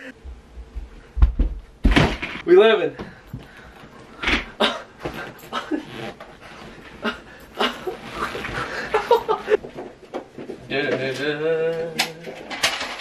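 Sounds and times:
man laughing: 4.6s - 6.1s, 7.0s - 9.6s.

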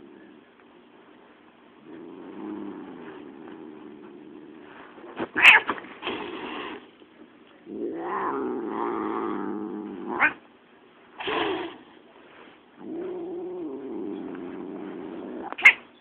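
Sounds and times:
cat growling and yowling: 5.4s - 5.8s, 7.7s - 10.4s, 12.8s - 15.8s.

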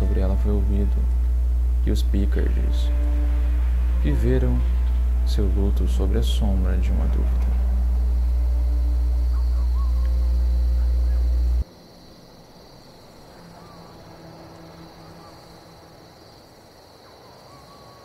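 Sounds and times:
loud deep drone: 0.0s - 11.7s
insect chirring: 0.0s - 18.0s
soft bird calls: 7.2s - 11.6s, 13.0s - 18.0s.

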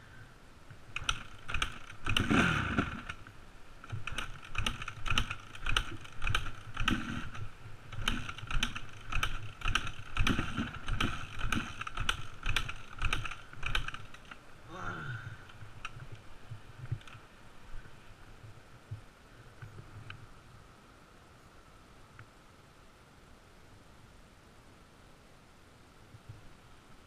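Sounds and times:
dirt bike engine: 0.0s - 17.3s.

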